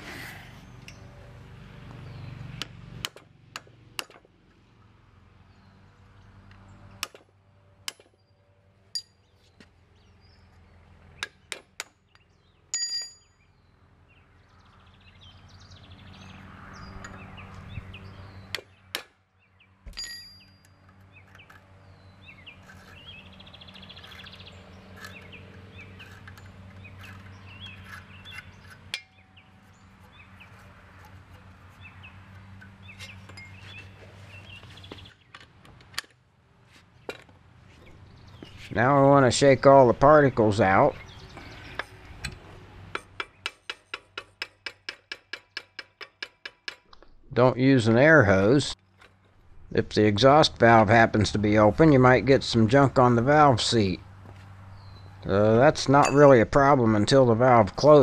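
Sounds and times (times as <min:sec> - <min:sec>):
hammer and chisel striking metal: 0:11.2 - 0:13.4, 0:27.8 - 0:29.5, 0:41.7 - 0:47.0, 0:56.0 - 0:56.4.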